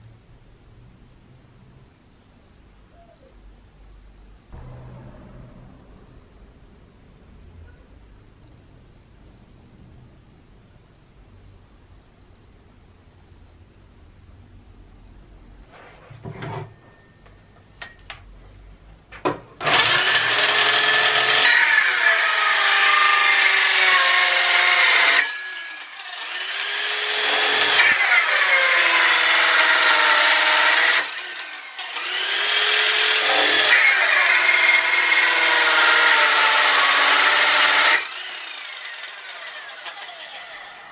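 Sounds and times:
drill powered saw cutting wood: 0:19.6 - 0:40.9.

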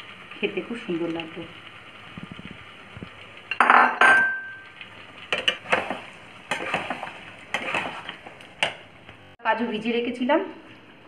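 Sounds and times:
metal spoon clanking on steel: 0:03.5 - 0:04.6.

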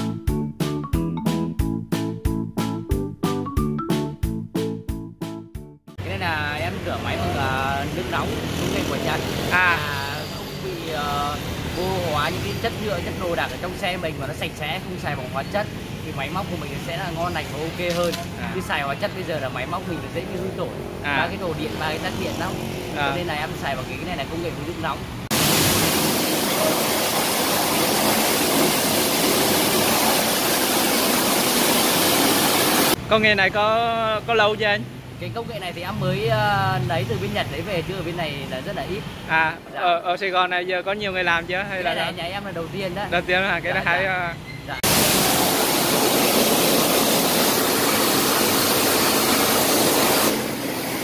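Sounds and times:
pressure washer spraying hiss: 0:25.3 - 0:33.0, 0:44.8 - 0:51.0
hot-water spray wand hissing: 0:44.9 - 0:51.0.

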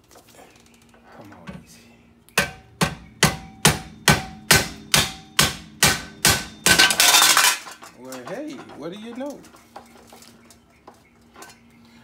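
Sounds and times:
hammer striking metal: 0:02.4 - 0:07.5.

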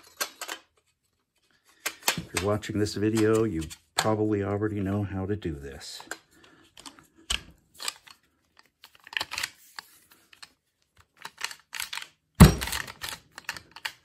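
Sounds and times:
shotgun handling clicks and knocks: 0:01.8 - 0:04.3, 0:10.4 - 0:14.0.

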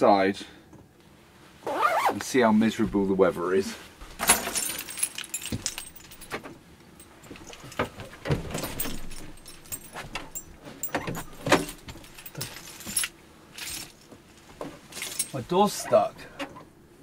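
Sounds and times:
keys jangling: 0:04.2 - 0:14.1, 0:14.9 - 0:15.4.

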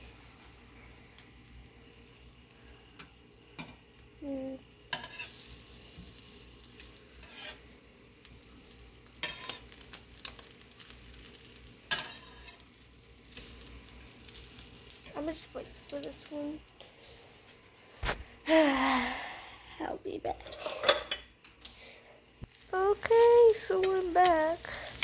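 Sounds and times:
eggs sizzling in frying pan: 0:00.0 - 0:25.0
metal spatula scraping pan: 0:05.0 - 0:05.4, 0:07.2 - 0:07.6, 0:09.2 - 0:09.7, 0:11.9 - 0:12.6.

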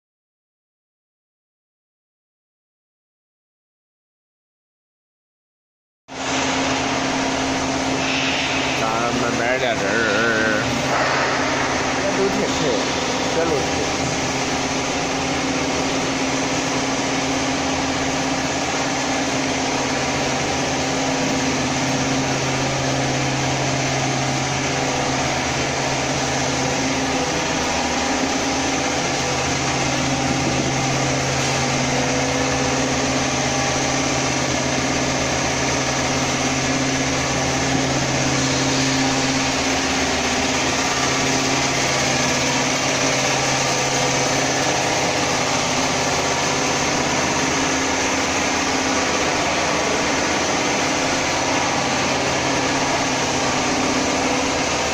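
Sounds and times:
machine motor hum: 0:06.1 - 0:54.9
strong even hiss: 0:08.0 - 0:09.4.

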